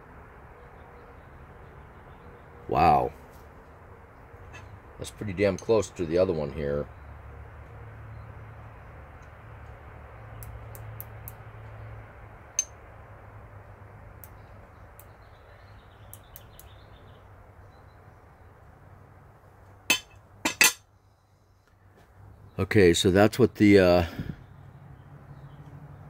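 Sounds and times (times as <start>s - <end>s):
metal tool knocks: 19.9s - 20.8s.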